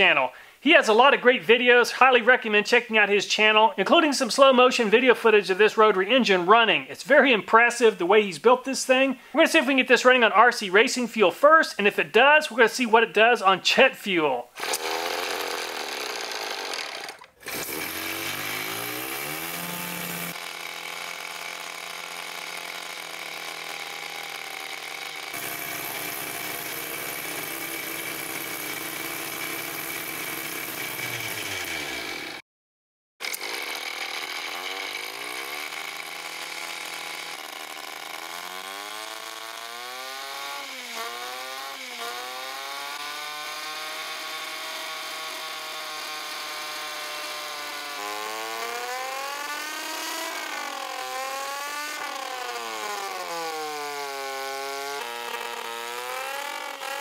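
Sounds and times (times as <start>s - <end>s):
rotary engine buzzing whine: 14.6s - 32.4s, 33.4s - 57.0s.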